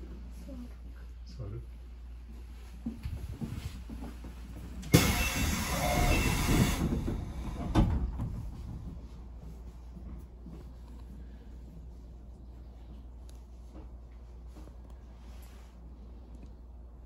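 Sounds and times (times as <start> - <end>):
low steady train rumble: 0.0 - 17.0
train clunk: 3.4 - 9.5
train air hiss: 4.9 - 7.7.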